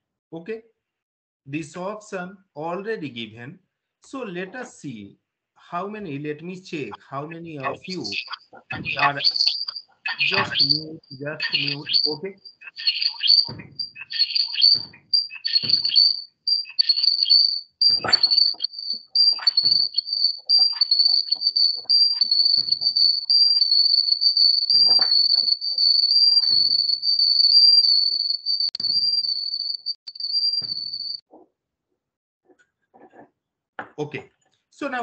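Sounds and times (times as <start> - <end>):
high-pitched trilling tone: 7.2 - 31.2
short knocks and clicks: 7.6 - 16.2, 17.8 - 20.6.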